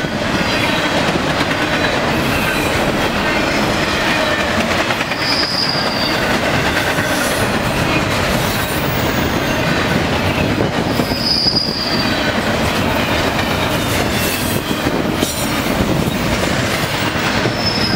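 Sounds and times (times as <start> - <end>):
train wheels rumbling on rails: 0.0 - 17.9
high wheel squeal: 5.1 - 6.3, 10.4 - 12.4, 17.3 - 17.9.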